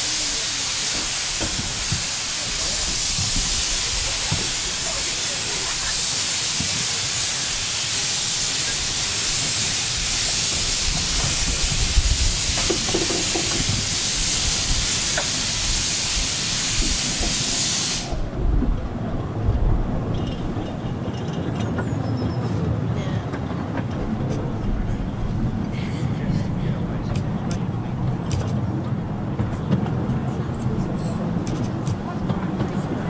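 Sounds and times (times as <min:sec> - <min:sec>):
steam locomotive hissing steam: 0:00.0 - 0:18.4
low train rumble: 0:00.0 - 0:33.0.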